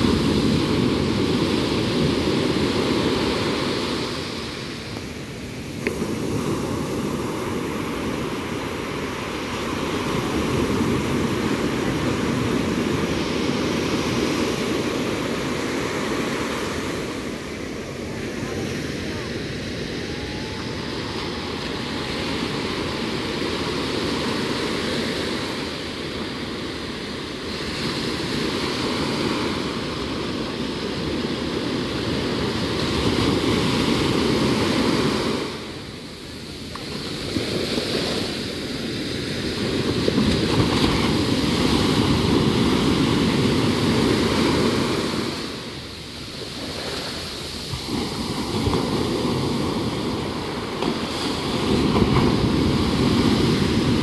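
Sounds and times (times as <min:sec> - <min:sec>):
surf washing on sandy shore: 0:00.0 - 0:54.0.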